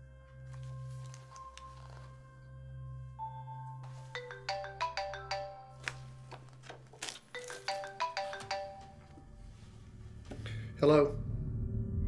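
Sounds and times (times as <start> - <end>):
paper rustling: 0.5 - 2.2, 5.8 - 8.6
marimba phone ringtone: 3.8 - 6.2, 7.4 - 9.4.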